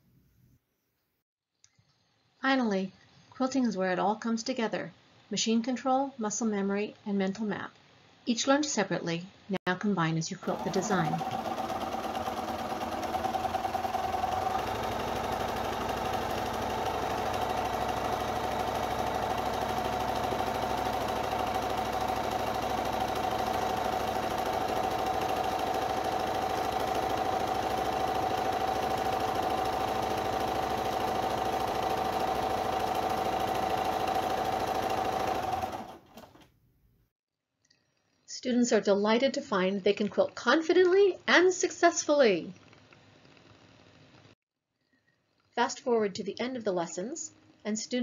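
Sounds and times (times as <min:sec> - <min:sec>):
sewing machine running: 0:10.4 - 0:36.5.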